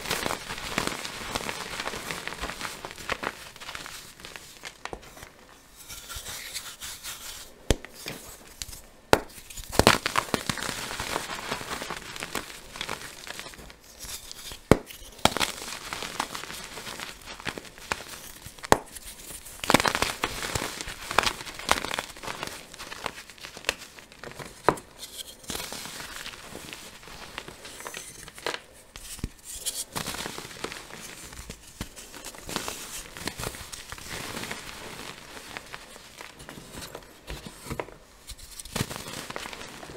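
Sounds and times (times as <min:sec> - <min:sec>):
hands crushing chalk: 0:05.8 - 0:26.1, 0:27.5 - 0:35.2
sharp cracks of chalk: 0:14.0 - 0:15.4, 0:18.0 - 0:20.2.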